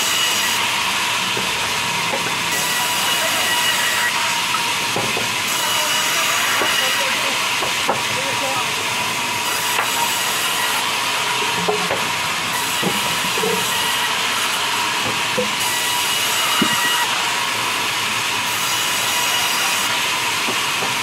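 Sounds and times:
band saw running: 0.0 - 21.0
logs knocking on saw table: 4.5 - 5.3, 7.6 - 8.1, 11.5 - 12.1, 12.8 - 13.8, 15.0 - 15.6, 16.6 - 17.0, 20.4 - 21.0.

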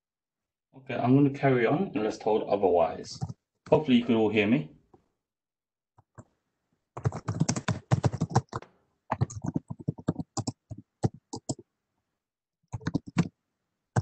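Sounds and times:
computer keyboard typing: 7.0 - 11.6, 12.7 - 13.3.

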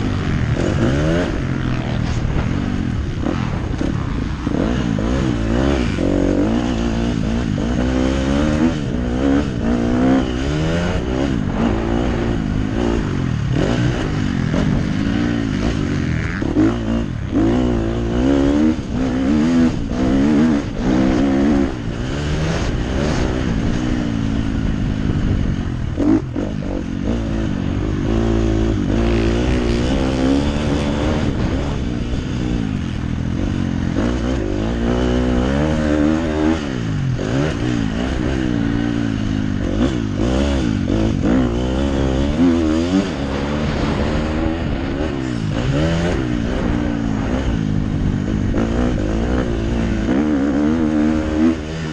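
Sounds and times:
motorbike engine revving: 0.0 - 51.9.

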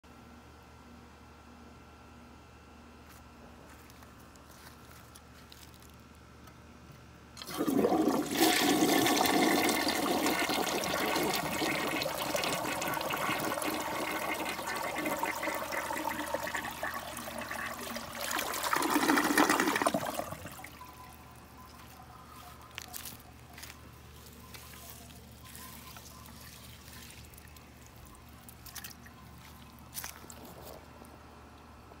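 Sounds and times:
toilet flushing: 7.4 - 21.0
faint water sounds: 7.4 - 32.0.

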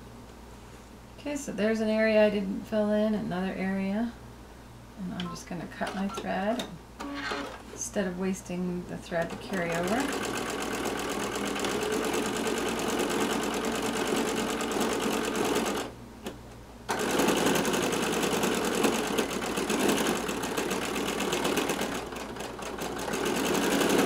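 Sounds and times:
sewing machine stitching: 7.0 - 7.6, 9.2 - 15.9, 16.9 - 24.0.

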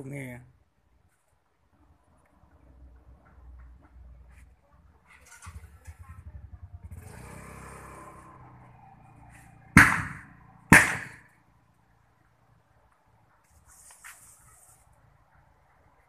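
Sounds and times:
vehicle passing with pulsing rumble: 5.2 - 12.8
loud sharp knocks: 9.8 - 11.3.

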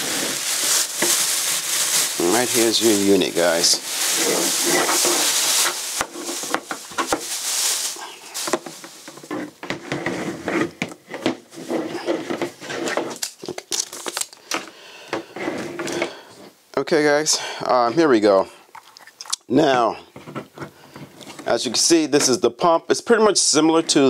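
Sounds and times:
paper rustling: 0.0 - 14.7
plastic bag crinkling: 0.0 - 14.7.

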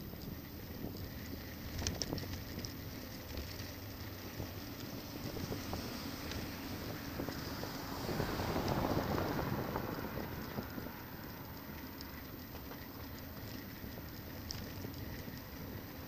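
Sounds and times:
faint ticks: 0.0 - 7.7, 10.4 - 16.0
road and traffic noise: 0.0 - 16.0
wind rushing over microphone: 4.1 - 14.2.

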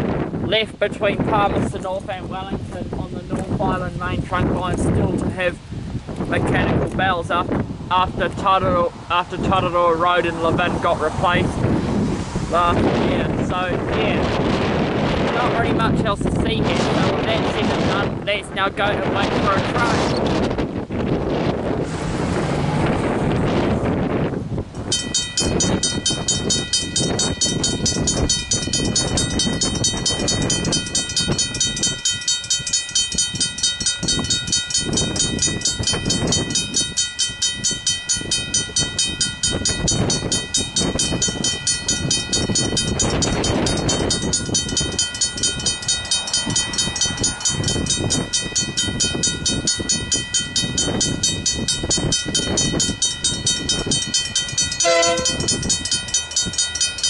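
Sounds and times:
level crossing bells ringing: 24.9 - 57.0.

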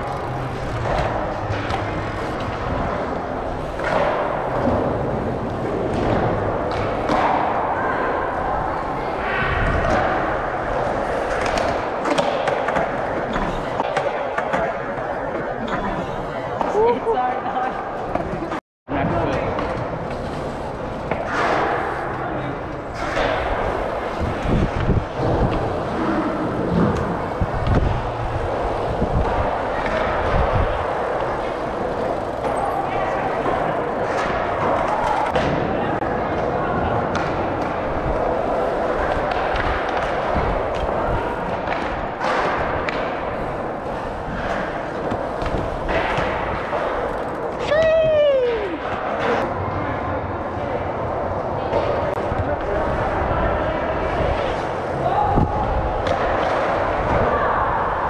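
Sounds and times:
bike tyres rolling on concrete: 0.0 - 58.0
wind on microphone: 23.6 - 30.9.

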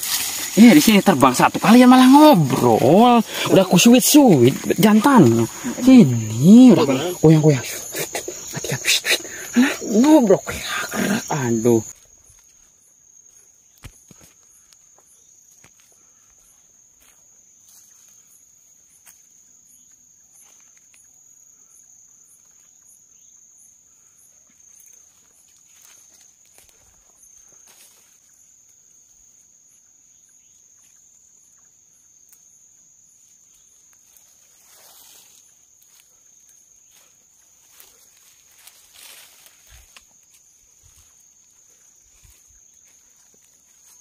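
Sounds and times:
rustling in undergrowth: 0.0 - 19.4, 24.5 - 28.8, 33.2 - 44.0
insect pulsing: 0.0 - 44.0
insects trilling: 0.0 - 44.0.

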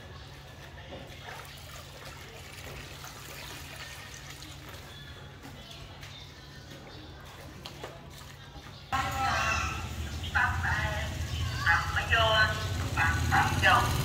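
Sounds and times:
water splashing in plastic basin: 1.1 - 4.9.

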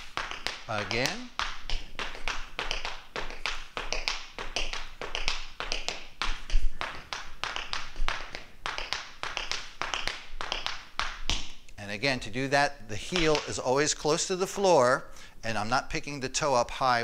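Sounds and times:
tap shoes on hard floor: 0.0 - 11.6, 13.0 - 13.6.

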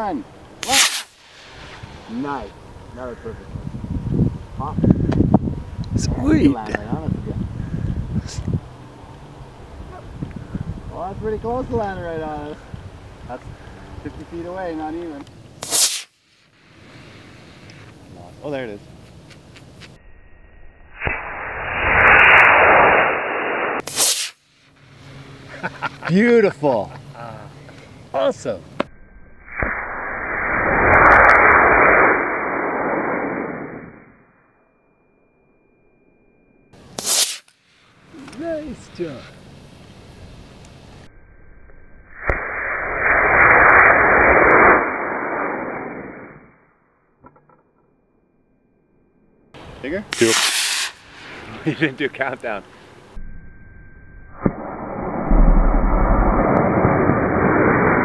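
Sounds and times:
rocket motor rushing hiss: 0.5 - 5.4, 15.6 - 18.0, 20.9 - 25.9, 36.8 - 41.1, 42.2 - 46.4, 49.6 - 53.2
model rocket motor rushing hiss: 36.9 - 37.5, 50.1 - 51.5.

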